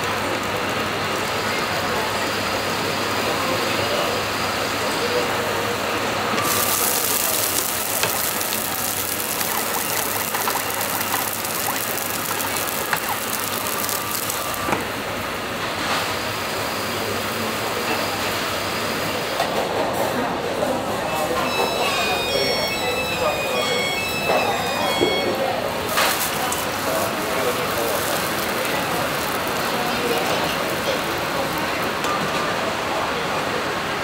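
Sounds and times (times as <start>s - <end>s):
loud frying sizzle: 0.0s - 19.8s, 21.4s - 34.0s
machine humming and clattering: 6.4s - 15.8s, 25.8s - 32.6s.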